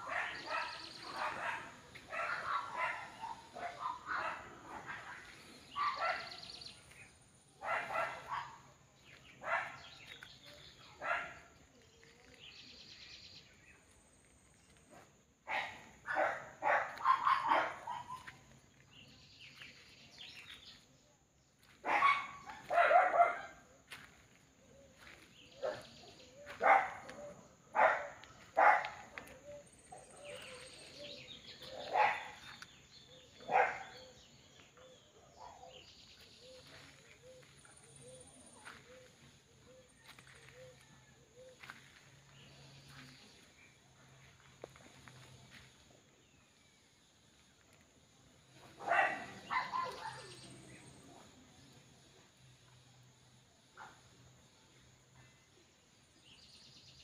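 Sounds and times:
dog barking: 0:00.0 - 0:06.6, 0:07.6 - 0:08.8, 0:09.4 - 0:10.2, 0:10.9 - 0:11.6, 0:14.9 - 0:18.5, 0:21.8 - 0:24.1, 0:25.0 - 0:35.9, 0:48.6 - 0:51.4.

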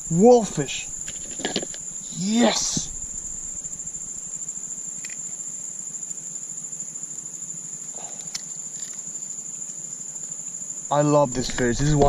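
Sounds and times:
insects trilling: 0:00.0 - 0:12.0
faint clicks: 0:05.0 - 0:05.2.

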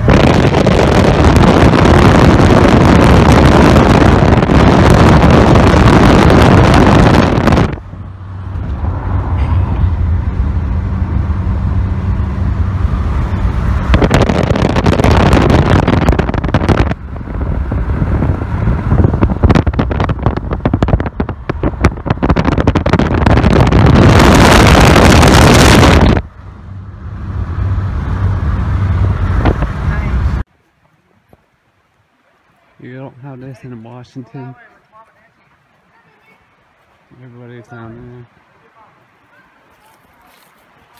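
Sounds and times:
wind noise rushing: 0:00.0 - 0:30.5
engine and road hum: 0:00.0 - 0:40.9.

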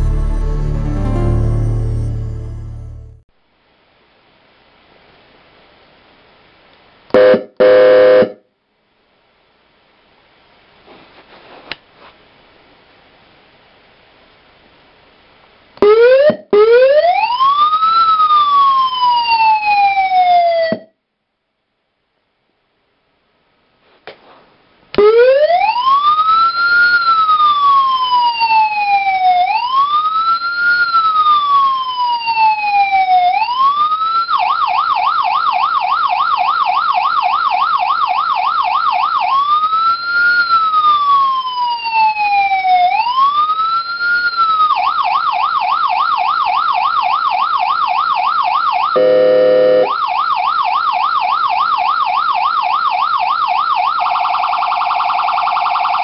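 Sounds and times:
electronic air-horn blast: 0:07.2 - 0:08.4, 0:49.0 - 0:49.9
electronic siren wail and yelp: 0:07.2 - 0:08.4, 0:15.8 - 0:20.9, 0:25.0 - 0:56.0.

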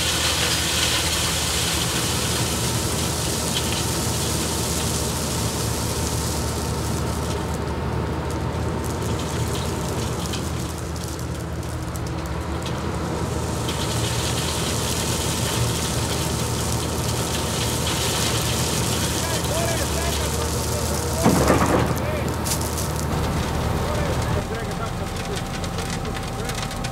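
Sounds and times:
crushed stone pouring into hopper: 0:00.0 - 0:26.9
heavy machinery drone: 0:15.5 - 0:26.9.

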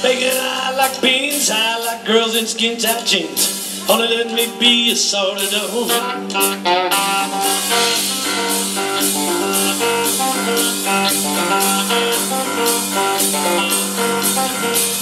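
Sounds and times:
bass: 0:00.0 - 0:15.0
drum beat: 0:00.0 - 0:15.0
electric guitar lead: 0:03.3 - 0:15.0.

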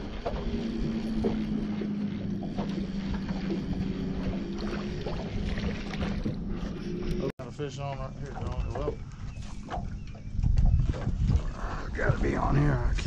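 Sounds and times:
electric trolling motor humming: 0:00.0 - 0:13.0
wind on microphone: 0:08.2 - 0:13.0.

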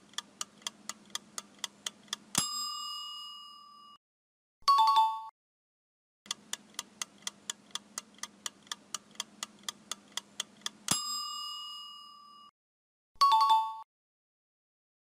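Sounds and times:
clock-like timer ticks: 0:00.0 - 0:02.8, 0:06.3 - 0:11.4
loud bell ding: 0:02.4 - 0:04.0, 0:10.9 - 0:12.5.

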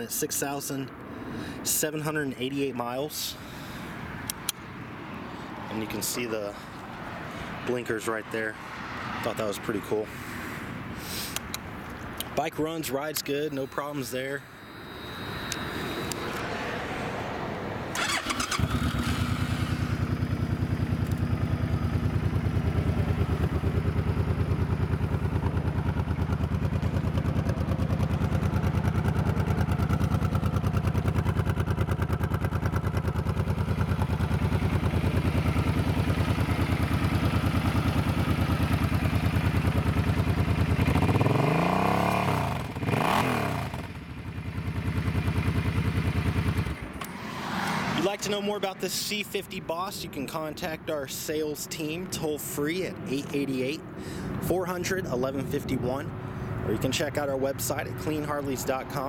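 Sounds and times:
motorcycle engine starting and idling: 0:17.8 - 0:49.5, 0:56.7 - 0:59.0
motorcycle engine revving: 0:17.9 - 0:48.4.

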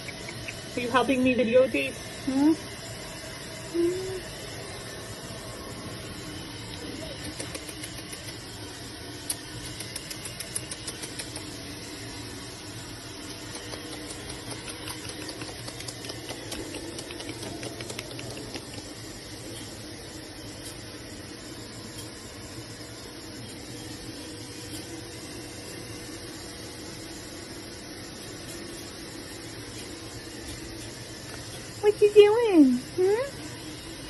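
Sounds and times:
puppy claws clicking on tile: 0:07.2 - 0:08.5, 0:09.3 - 0:11.6, 0:13.2 - 0:19.0.

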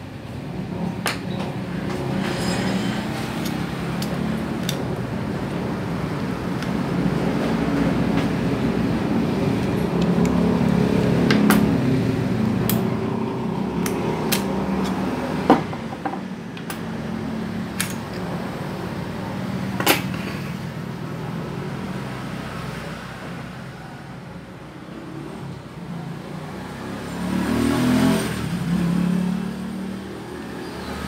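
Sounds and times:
metal lock parts clicking: 0:03.3 - 0:04.9, 0:17.7 - 0:18.3.

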